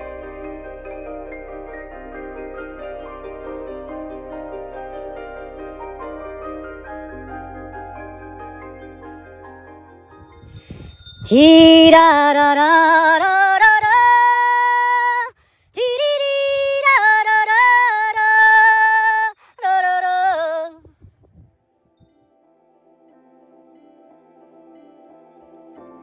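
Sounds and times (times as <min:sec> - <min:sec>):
woman singing unaccompanied: 0:11.3 - 0:21.0.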